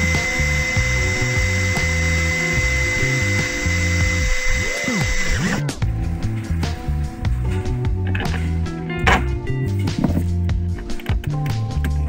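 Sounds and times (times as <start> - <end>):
cordless drill whining: 0.0 - 5.7
background music with bass: 0.0 - 12.0.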